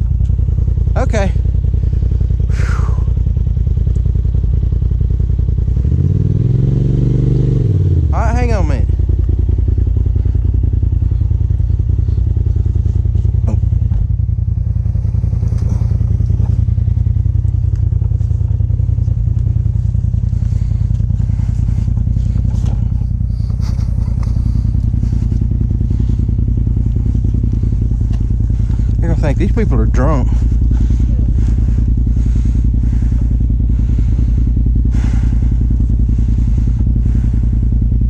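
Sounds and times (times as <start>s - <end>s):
vehicle engine idling: 0.0s - 38.0s.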